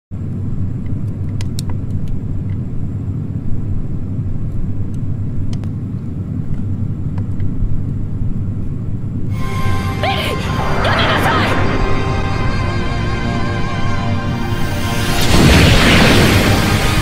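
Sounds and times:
deep rumble: 0:06.0 - 0:17.0.

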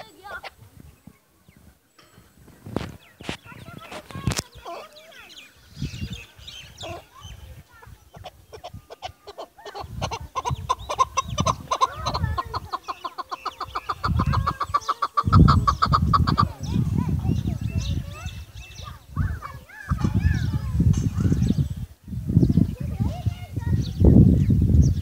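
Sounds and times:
partridge clucking calls: 0:01.9 - 0:21.6.

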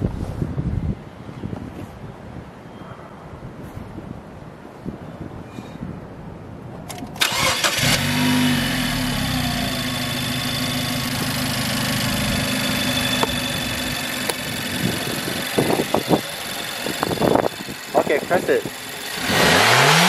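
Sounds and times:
car engine starting and idling: 0:07.1 - 0:20.0.

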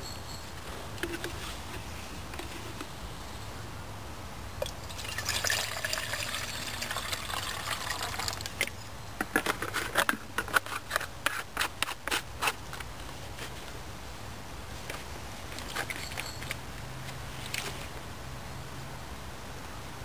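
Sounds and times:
water pouring into metal can: 0:04.6 - 0:08.6.

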